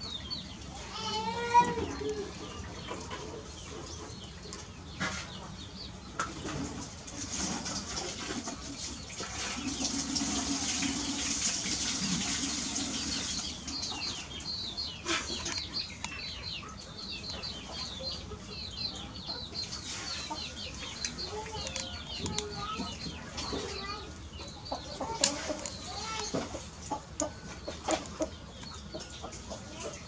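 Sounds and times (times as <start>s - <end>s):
low clucking calls: 1.5s - 30.0s
birds chirping high notes: 9.6s - 30.0s.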